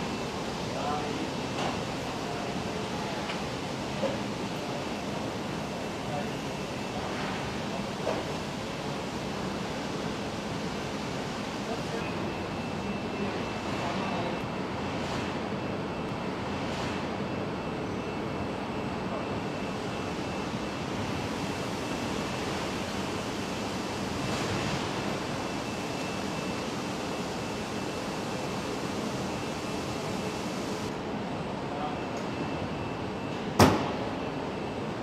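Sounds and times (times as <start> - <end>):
faint high whine: 17.2 - 31.0
machinery and air rushing: 19.7 - 31.7.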